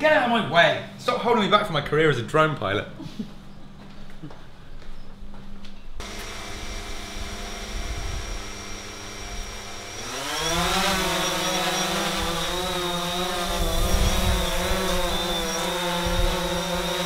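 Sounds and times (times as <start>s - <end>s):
drone motors and propellers: 6.0s - 17.0s.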